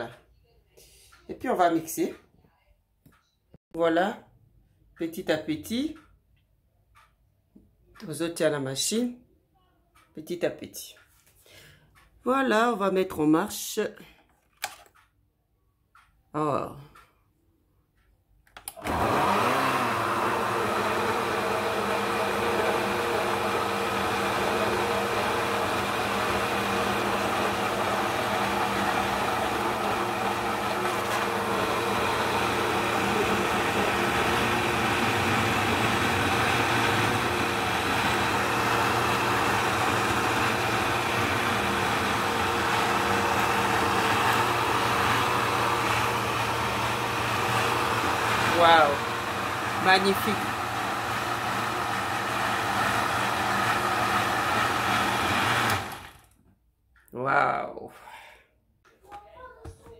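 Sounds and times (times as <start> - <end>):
blender motor blending: 18.7 - 56.3.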